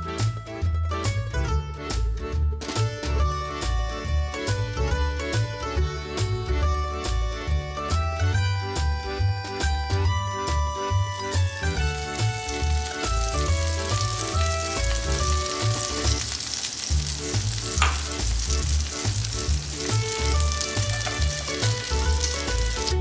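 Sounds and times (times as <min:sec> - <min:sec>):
background music with bass line: 0:00.0 - 0:23.0
butter sizzling in oil: 0:11.0 - 0:23.0.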